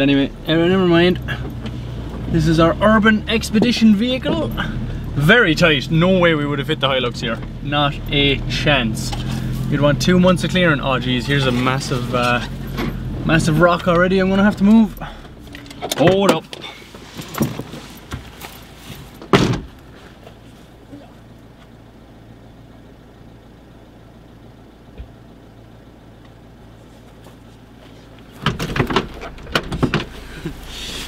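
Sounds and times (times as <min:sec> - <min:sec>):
engine idling: 0:00.0 - 0:31.0
rustling: 0:16.6 - 0:20.9, 0:26.7 - 0:31.0
car door shutting: 0:19.1 - 0:19.9, 0:28.2 - 0:31.0.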